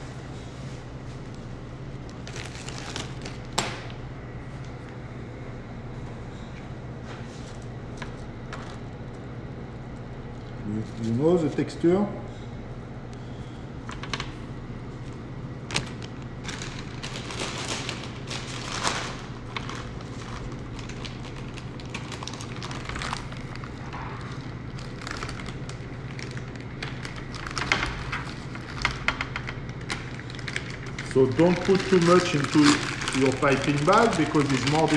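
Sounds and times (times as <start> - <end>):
steady low hum: 0.0 - 34.9
plastic crinkling: 2.0 - 3.6, 15.6 - 34.9.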